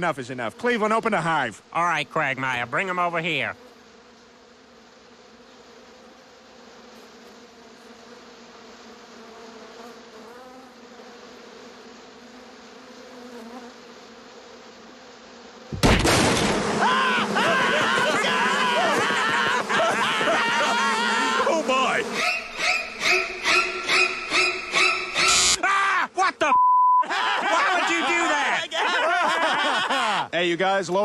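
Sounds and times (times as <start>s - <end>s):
cartoon bee swarm buzzing: 0.0s - 25.6s
wooden beehives crashing: 15.7s - 23.0s
loud din: 15.8s - 22.1s.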